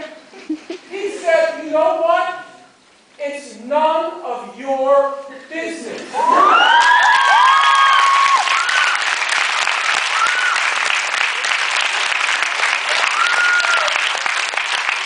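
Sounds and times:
people whooping and cheering: 6.1 - 11.6, 12.8 - 14.3
audience applauding: 6.2 - 15.0.

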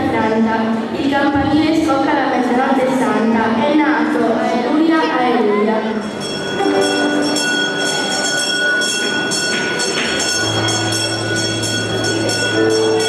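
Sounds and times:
high jingling beat: 6.0 - 13.0.

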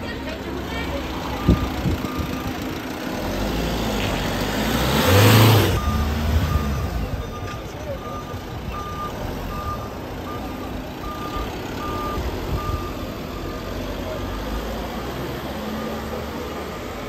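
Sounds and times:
van engines running: 0.0 - 17.0
electronic warning beeper: 5.1 - 14.6.

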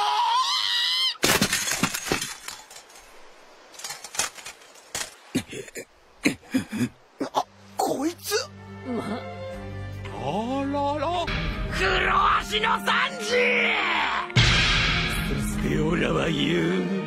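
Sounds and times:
sharp knocks and crashes: 1.2 - 3.0.

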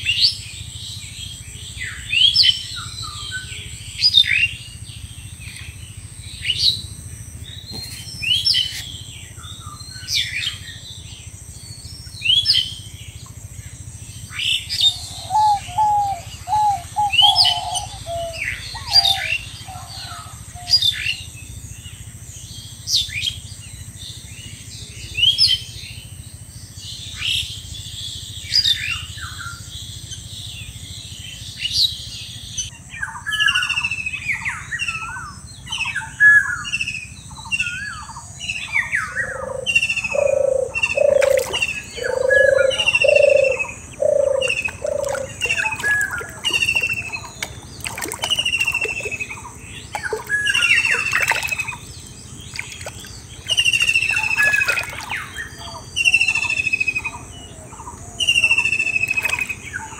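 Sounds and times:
bird low evenly spaced notes: 0.0 - 20.7, 38.9 - 59.9
birds chirping: 0.0 - 23.5, 27.1 - 59.9.

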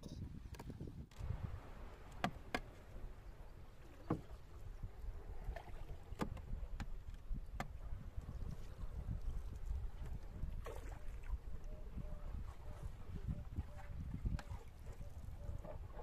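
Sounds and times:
pole knocking against boat: 6.2 - 7.8
pole splashing in water: 10.5 - 11.3.

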